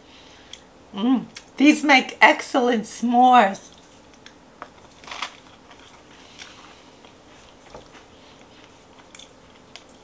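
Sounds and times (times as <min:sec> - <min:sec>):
person biting and chewing: 0:03.7 - 0:10.0.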